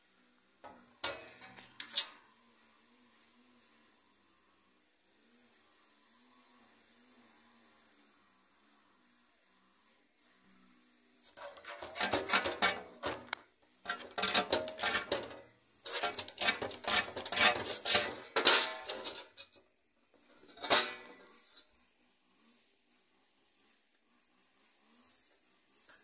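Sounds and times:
stone wheel rasping against rock: 11.2 - 19.6.

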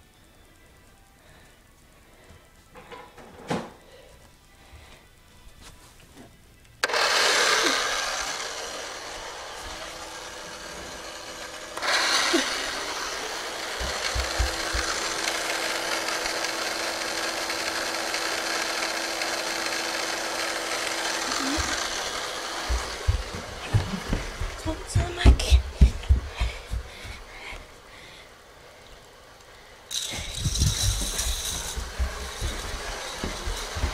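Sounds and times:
faint hum: 0.0 - 6.9
rattle of plastic roller coaster: 20.5 - 22.2, 29.9 - 33.9.

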